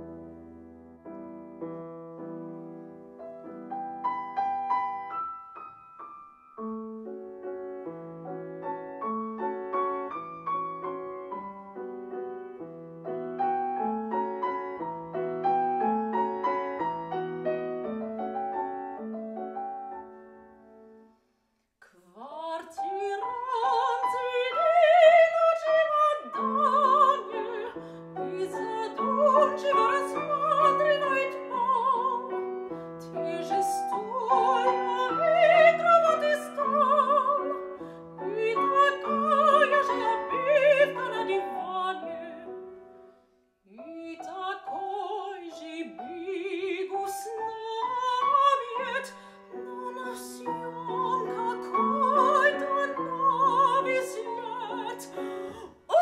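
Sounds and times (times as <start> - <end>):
soprano singing with vibrato: 21.9 - 42.7, 43.7 - 56.0.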